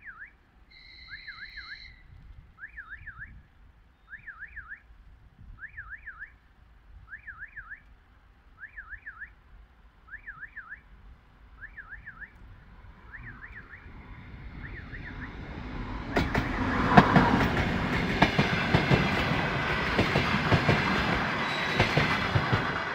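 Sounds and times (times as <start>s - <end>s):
level crossing warning signal: 8.6s - 9.4s, 10.1s - 19.2s
train rumbling past: 11.3s - 22.9s
train wheels clattering over rails: 14.6s - 22.9s.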